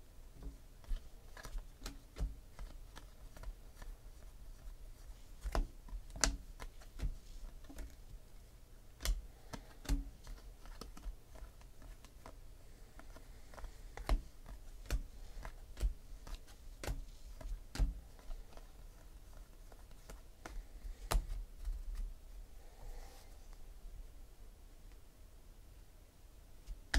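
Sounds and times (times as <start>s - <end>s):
cards flipping and clicking: 0.4s - 4.7s, 9.0s - 12.4s, 13.0s - 22.0s.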